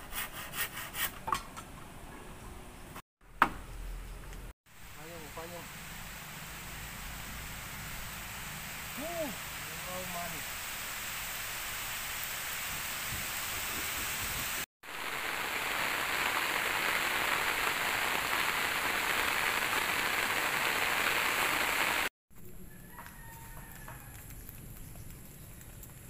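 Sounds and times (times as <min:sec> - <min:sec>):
rain falling on trees and grass: 0:04.7 - 0:22.1, 0:22.7 - 0:26.0.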